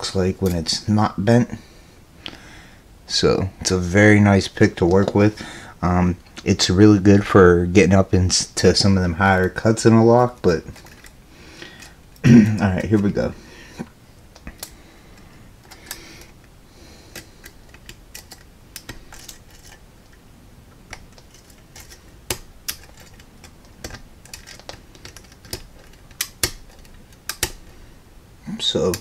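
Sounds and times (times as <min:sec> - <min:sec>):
lock pick clicking on pins: 0:17.1 - 0:19.8, 0:20.8 - 0:27.7.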